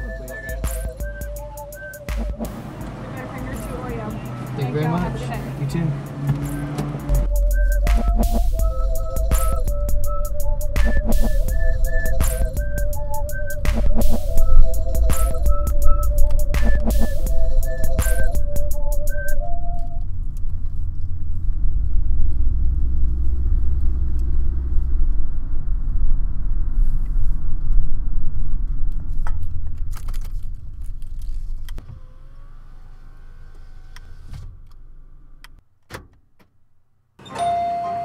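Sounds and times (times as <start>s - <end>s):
car road and wind noise: 1.8s - 35.6s
car door-open warning chime: 37.2s - 38.0s.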